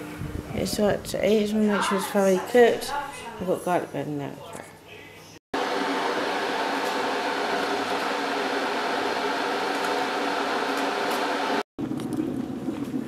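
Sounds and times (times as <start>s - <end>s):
electric kettle heating up: 5.6s - 11.7s.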